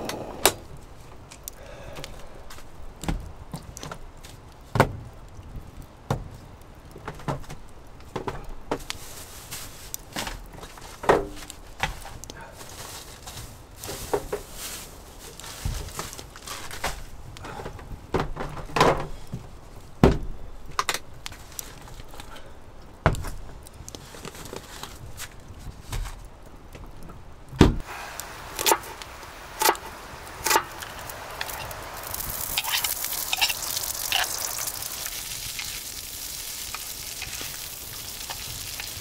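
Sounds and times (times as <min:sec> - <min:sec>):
packaging rustling: 0:30.8 - 0:39.0.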